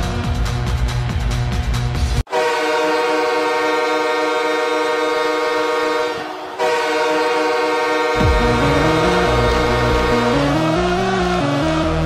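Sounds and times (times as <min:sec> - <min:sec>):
deep goal air horn: 0:02.3 - 0:11.4.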